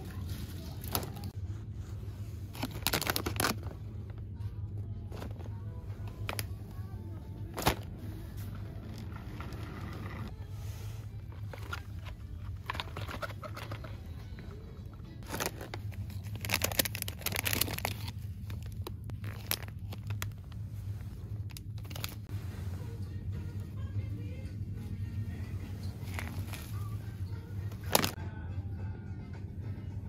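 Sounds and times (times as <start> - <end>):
steady low hum: 0.0 - 30.0
packaging rustling and crinkling: 2.5 - 3.8, 15.2 - 22.4, 27.7 - 28.2.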